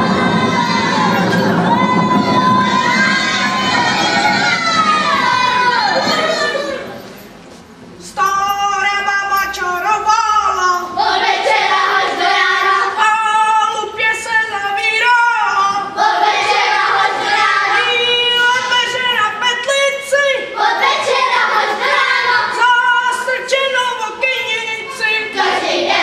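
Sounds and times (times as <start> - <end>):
group of high voices singing: 0.0 - 7.0, 9.8 - 19.3, 20.3 - 26.0.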